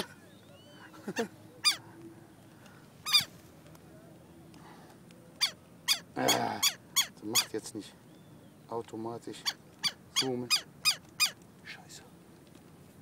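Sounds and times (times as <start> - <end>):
lapwing alarm calls: 0.0 - 2.0, 3.0 - 3.4, 5.4 - 11.4.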